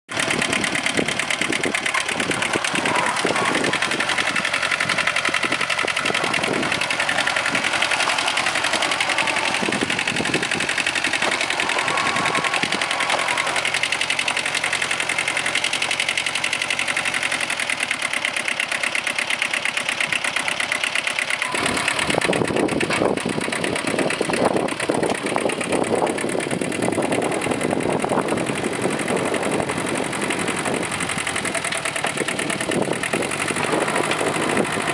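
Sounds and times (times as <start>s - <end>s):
tractor diesel engine clattering: 0.1s - 34.9s.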